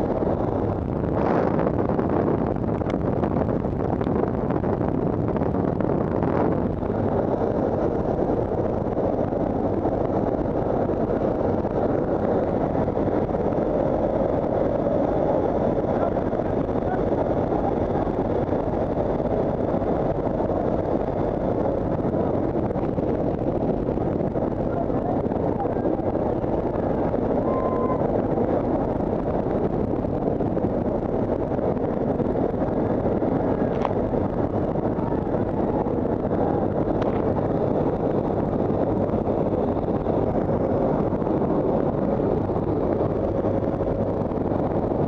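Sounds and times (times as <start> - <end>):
aircraft engine noise: 0.0 - 45.0
wind rushing: 0.0 - 45.0
faint high whine: 24.6 - 28.8.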